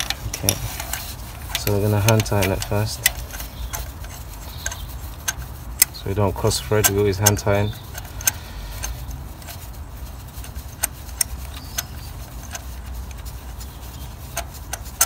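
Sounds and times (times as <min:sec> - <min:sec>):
steady low rumble: 0:00.0 - 0:14.9.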